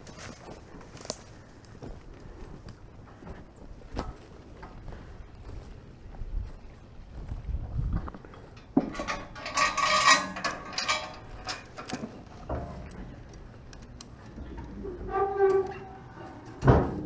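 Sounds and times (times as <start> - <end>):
metal chains clanking and rattling: 8.4 - 13.1, 15.0 - 17.0.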